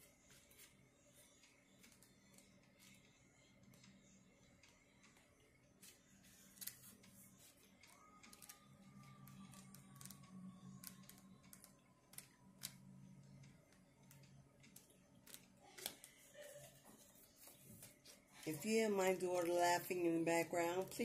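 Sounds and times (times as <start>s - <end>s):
faint low hum: 0.0s - 21.0s
cards being handled: 0.2s - 2.9s, 14.7s - 18.4s.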